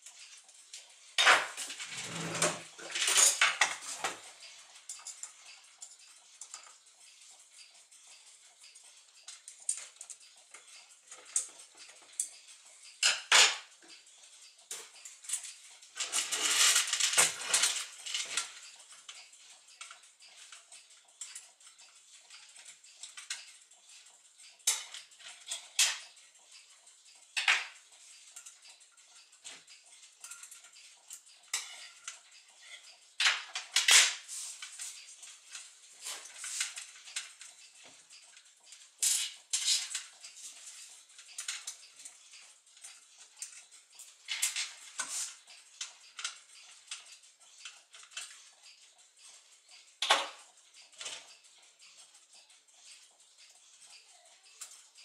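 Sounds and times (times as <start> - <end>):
metal clicks and clinks: 0.1 - 6.8, 7.6 - 55.0.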